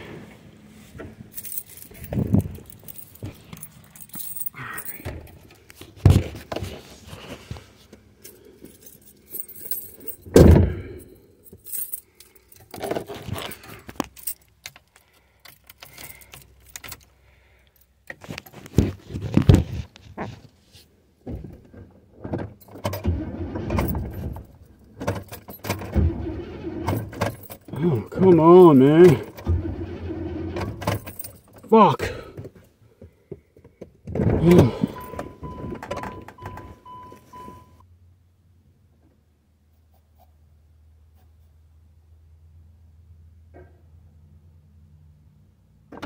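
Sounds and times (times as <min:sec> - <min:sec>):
knocks and clunks: 0:01.0 - 0:06.8, 0:10.1 - 0:10.9, 0:30.5 - 0:37.6
keys jangling: 0:01.3 - 0:05.7, 0:08.2 - 0:17.1, 0:23.8 - 0:25.9, 0:26.9 - 0:29.4, 0:30.9 - 0:31.7.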